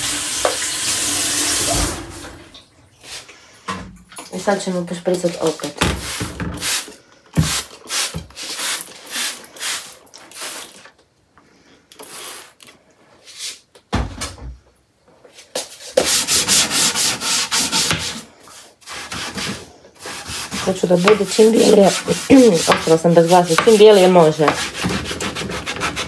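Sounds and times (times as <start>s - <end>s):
hand scrubbing on drawer: 5.1s - 10.8s, 18.9s - 26.0s.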